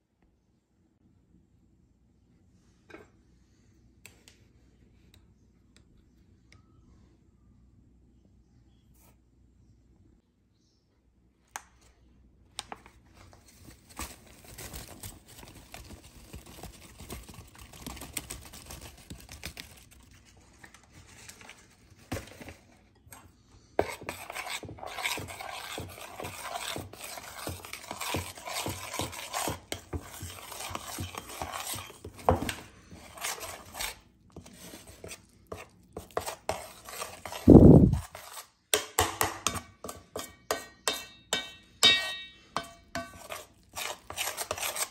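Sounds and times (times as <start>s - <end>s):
spoon scraping enamel bowl: 23.0s - 44.9s.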